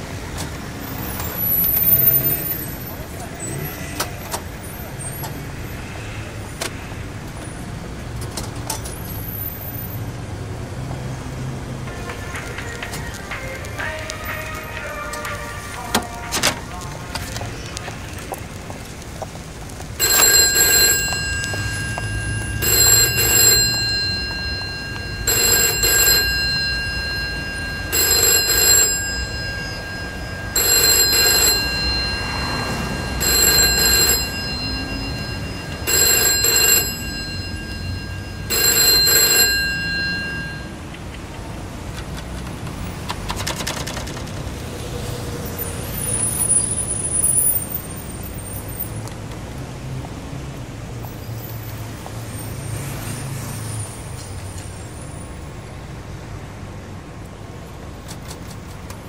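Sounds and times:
telephone ringing: 0:20.0 - 0:40.9.

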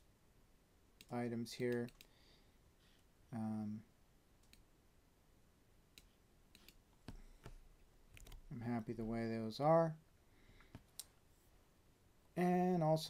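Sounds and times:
mouse and keyboard clicks: 0:06.0 - 0:08.4.

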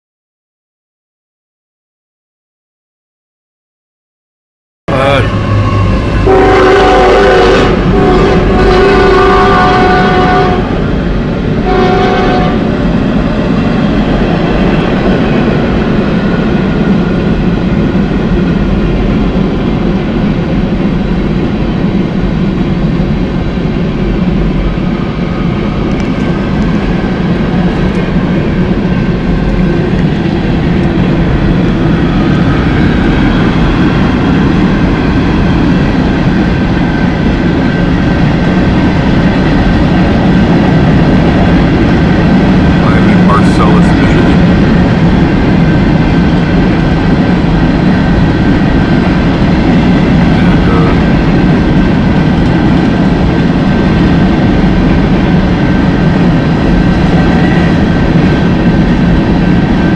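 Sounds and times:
train horn: 0:04.9 - 0:10.8, 0:11.6 - 0:12.7
train wheels rumbling on rails: 0:04.9 - 0:59.9.

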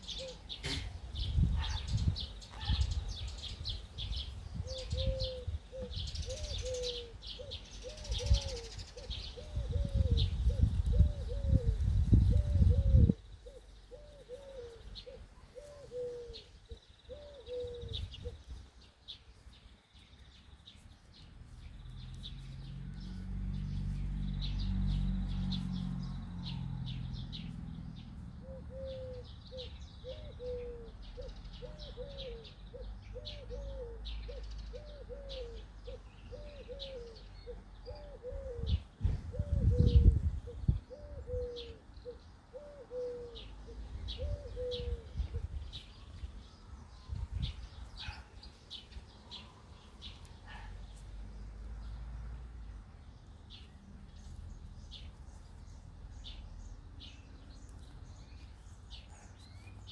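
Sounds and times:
dove cooing: 0:00.0 - 0:00.9, 0:04.6 - 0:18.5, 0:28.2 - 0:45.6
small birds chirping: 0:00.0 - 0:59.9.

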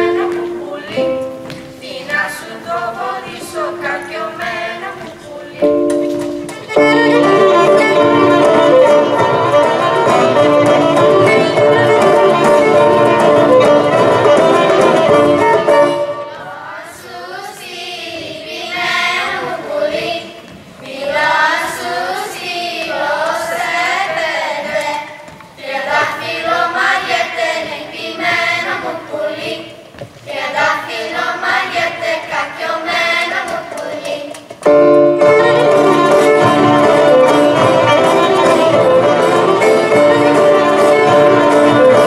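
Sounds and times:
children singing: 0:00.0 - 0:01.2, 0:01.8 - 0:05.9, 0:06.6 - 0:42.0
folk band with violin: 0:05.0 - 0:16.4, 0:34.7 - 0:42.0.

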